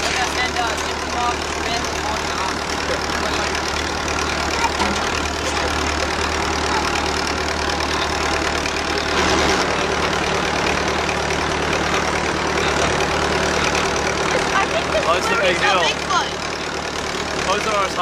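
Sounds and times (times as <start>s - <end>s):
tractor engine running: 0.0s - 18.0s.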